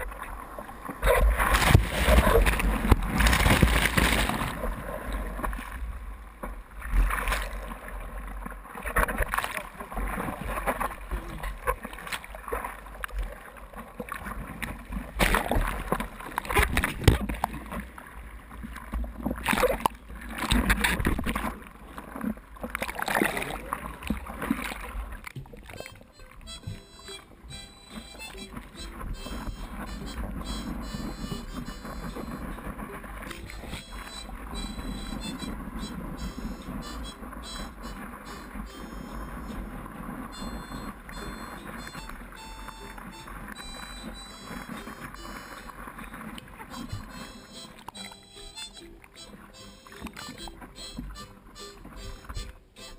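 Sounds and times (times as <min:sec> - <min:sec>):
whitewater rushing and splashing: 0:00.0 - 0:05.9
low microphone rumble: 0:00.0 - 0:08.8, 0:26.1 - 0:47.6
seawater splashing and sloshing: 0:00.0 - 0:52.9
water knocking against camera: 0:25.3 - 0:30.7.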